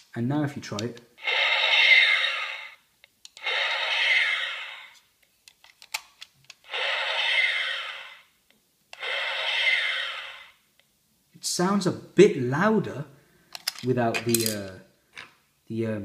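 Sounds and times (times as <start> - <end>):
toy phaser zap: 1.2 - 2.8, 3.4 - 5.0, 6.7 - 8.2, 9.0 - 10.6.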